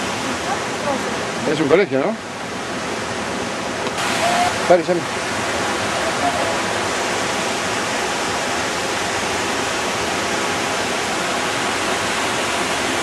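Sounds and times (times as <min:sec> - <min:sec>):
stream rushing over boulders: 0:00.0 - 0:13.0.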